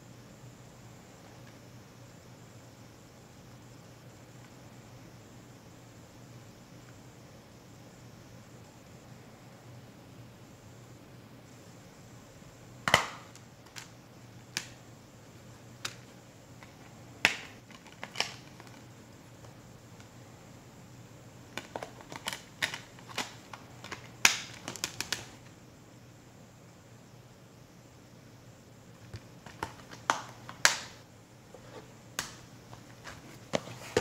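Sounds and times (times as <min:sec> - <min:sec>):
plastic case clicks and snaps: 0:12.8 - 0:13.9, 0:21.6 - 0:25.3, 0:29.1 - 0:31.0.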